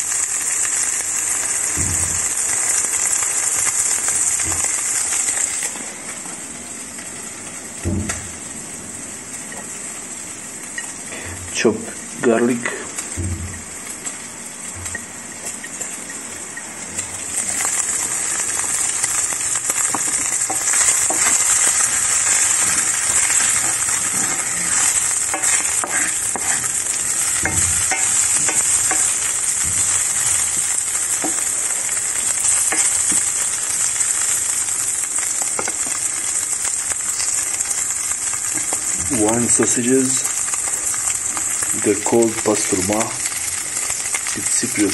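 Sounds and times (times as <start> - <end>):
sausage sizzling in frying pan: 0.0 - 44.9
wooden spatula scraping pan: 17.4 - 30.5.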